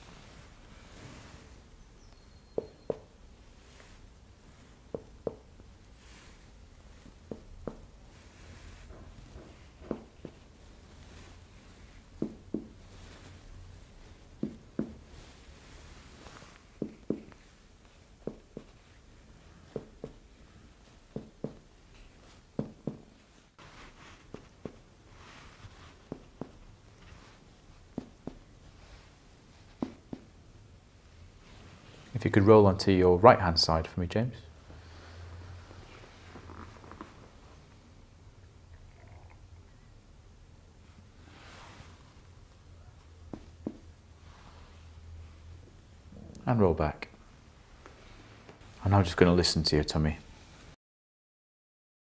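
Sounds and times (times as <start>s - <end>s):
finger tapping on belly: 2.5s - 3.1s.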